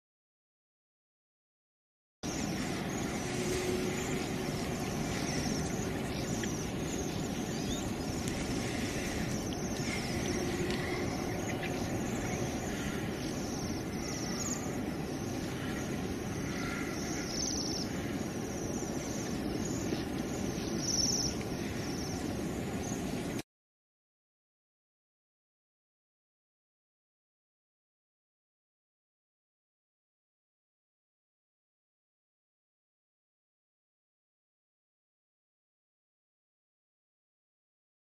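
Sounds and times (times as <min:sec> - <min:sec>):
low rumble: 0:02.2 - 0:20.6
small birds chirping: 0:02.2 - 0:23.4
steady hiss: 0:02.3 - 0:23.4.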